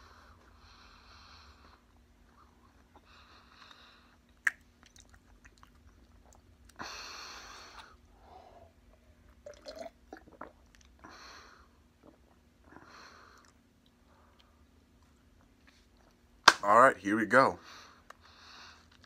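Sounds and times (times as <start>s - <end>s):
chewing: 4.3s - 6.8s
gulping drink: 9.4s - 11.0s, 11.9s - 12.8s.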